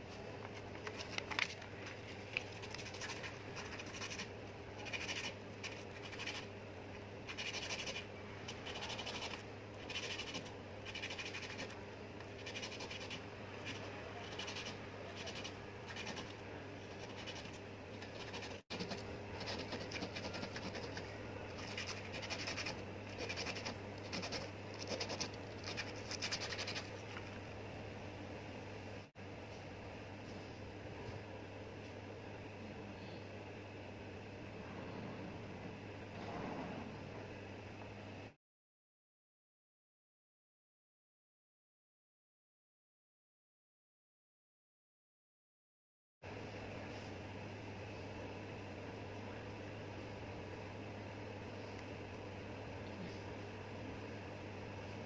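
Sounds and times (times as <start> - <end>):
metal part scratching on sandpaper: 2.4 - 6.5, 7.3 - 11.8, 12.4 - 26.9.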